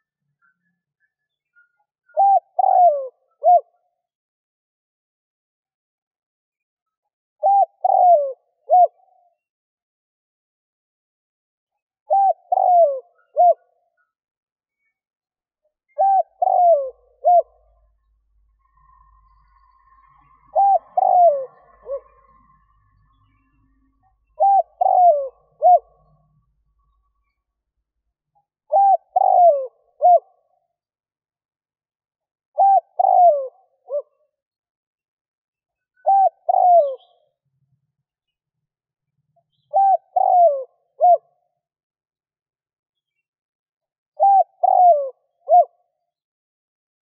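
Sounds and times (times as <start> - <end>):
dove cooing: 2.1 - 3.7, 7.4 - 9.2, 12.1 - 13.6, 15.9 - 17.9, 20.4 - 22.5, 24.4 - 26.1, 28.7 - 30.4, 32.6 - 34.1, 36.0 - 37.2, 39.7 - 41.3, 44.2 - 45.8.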